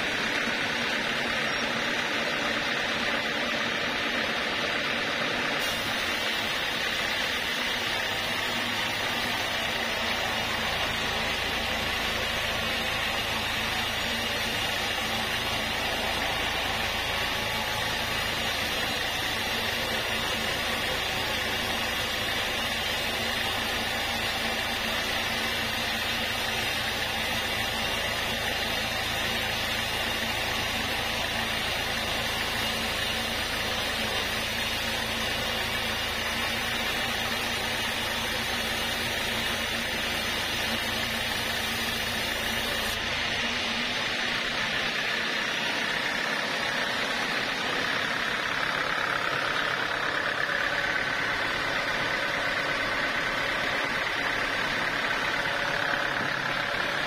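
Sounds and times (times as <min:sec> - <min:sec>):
band saw cutting log: 0:05.2 - 0:57.0
high saw tone: 0:05.6 - 0:44.1.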